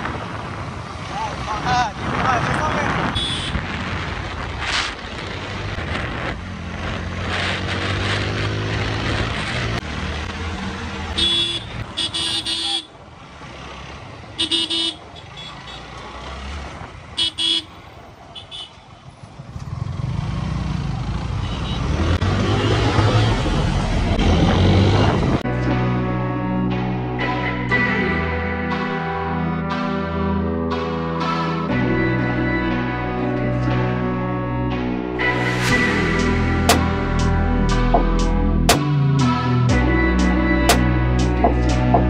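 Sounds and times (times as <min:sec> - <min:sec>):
wind rush on microphone: 0:00.0 - 0:06.9
motorcycle engine revving: 0:02.9 - 0:12.3, 0:19.3 - 0:25.4
horns honking: 0:03.0 - 0:03.7, 0:11.1 - 0:13.0, 0:14.3 - 0:16.2, 0:17.1 - 0:19.1, 0:21.3 - 0:23.7.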